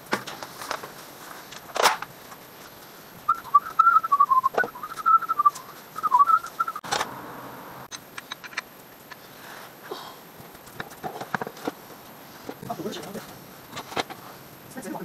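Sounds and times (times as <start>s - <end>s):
person whistling a tune: 3.3s - 6.8s.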